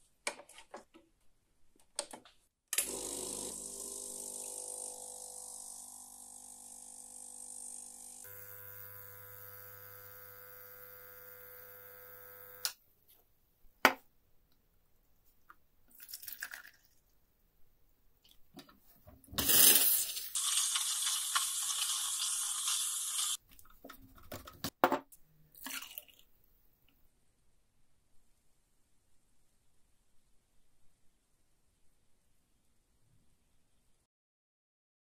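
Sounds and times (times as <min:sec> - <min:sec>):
espresso machine pump humming: 0:02.8 - 0:12.7, 0:20.4 - 0:23.4
milk pouring into a steel pitcher: 0:15.9 - 0:17.0, 0:25.6 - 0:26.3
milk splashing into a glass: 0:15.9 - 0:17.0, 0:25.6 - 0:26.3
milk-steaming wand hissing: 0:19.7 - 0:23.4.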